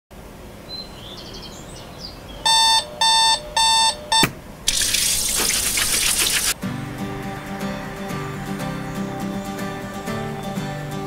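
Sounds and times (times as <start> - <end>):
digital alarm clock beeping: 2.5 - 5.3.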